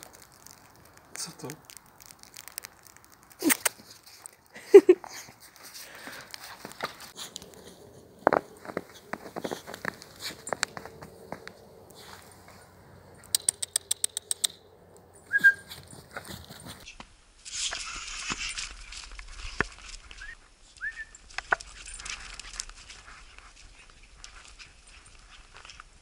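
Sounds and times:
dog snuffling in snow: 0:06.4 - 0:12.7
quick clicks: 0:13.2 - 0:14.6
dog whimpering: 0:15.3 - 0:15.8.

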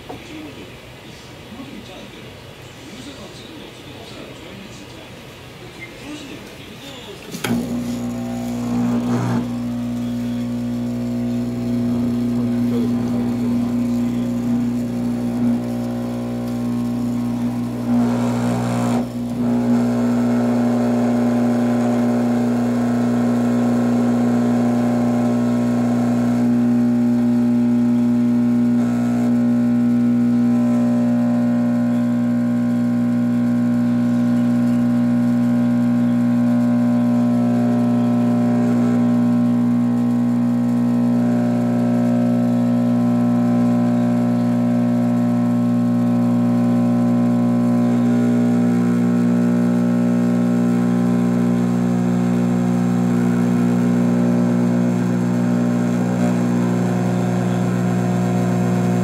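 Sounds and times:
electric vibrator humming: 0:07.4 - 0:59.0.

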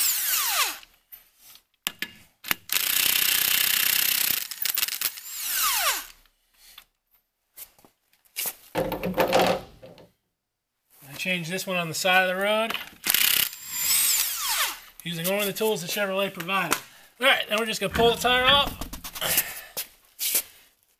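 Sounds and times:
impact wrench spinning: 0:13.0 - 0:14.8.

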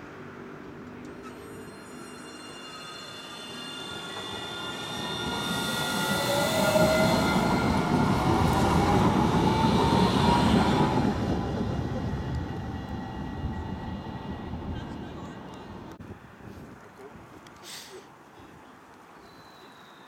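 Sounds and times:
tram wheels rumbling on rails: 0:00.8 - 0:16.0.

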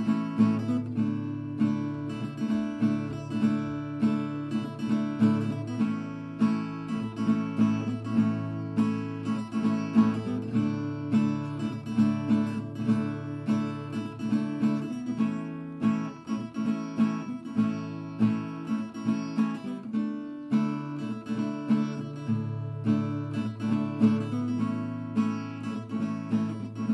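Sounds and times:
acoustic guitar picking and strumming: 0:00.0 - 0:26.9.

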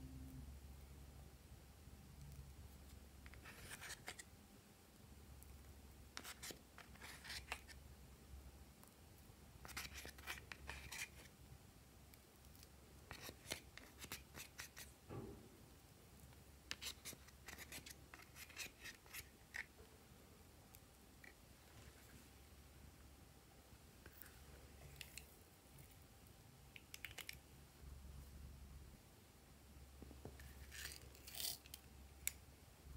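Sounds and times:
plastic spatula scratching eyeshadow: 0:02.8 - 0:04.3, 0:06.1 - 0:07.8, 0:09.6 - 0:11.3, 0:12.4 - 0:15.0, 0:16.7 - 0:19.8.

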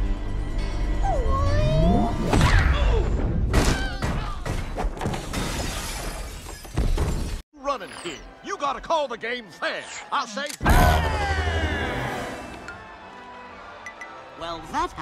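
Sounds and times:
glass shattering: 0:05.2 - 0:07.4.

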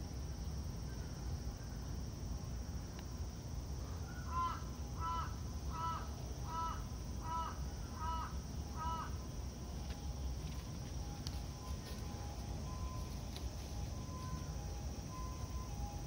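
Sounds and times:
crow cawing: 0:04.2 - 0:09.2.

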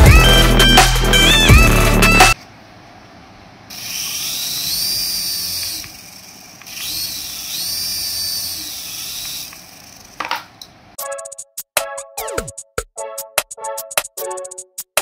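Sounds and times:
toy helicopter motor whine: 0:03.7 - 0:10.2.

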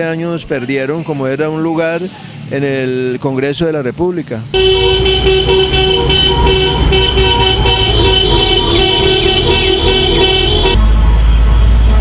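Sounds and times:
traffic noise: 0:00.0 - 0:12.0
car horns honking: 0:04.6 - 0:10.8.

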